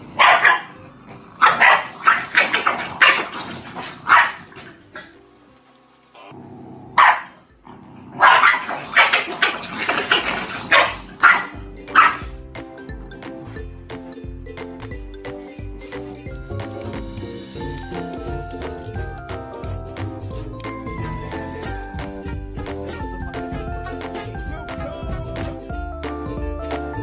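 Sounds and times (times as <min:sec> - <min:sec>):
background music: 0:00.0 - 0:27.0
dog barking sharply: 0:00.2 - 0:00.7, 0:01.4 - 0:03.3, 0:04.0 - 0:04.5, 0:07.0 - 0:07.4, 0:08.2 - 0:09.3, 0:10.7 - 0:12.2.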